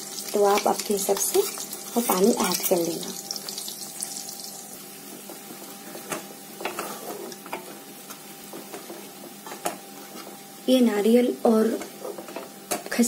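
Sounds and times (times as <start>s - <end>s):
paste sizzling in oil: 0.0s - 10.7s
wooden spatula scraping a pan: 5.0s - 10.5s, 11.7s - 12.6s.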